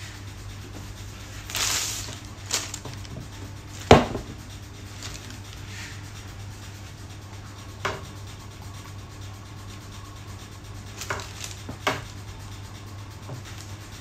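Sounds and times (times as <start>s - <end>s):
low steady hum: 0.0s - 14.0s
plastic parts rustling: 1.4s - 4.1s, 5.0s - 5.6s, 11.0s - 11.8s.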